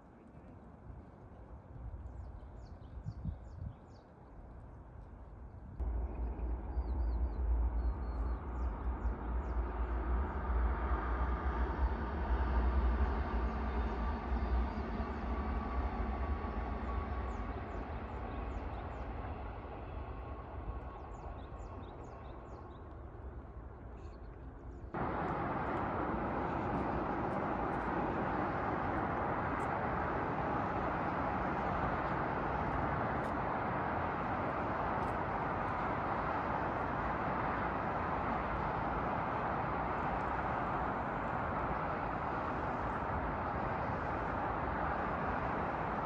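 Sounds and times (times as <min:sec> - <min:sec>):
passenger train rumbling past: 0:05.8 - 0:23.8, 0:24.9 - 0:46.0
road traffic noise: 0:25.0 - 0:46.0.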